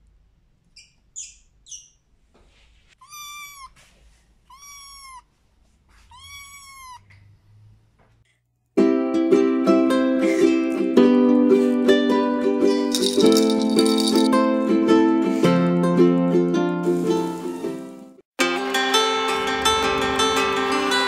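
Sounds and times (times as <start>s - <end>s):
kittens mewing: 6.1s - 7.1s
ukulele music: 8.8s - 17.5s.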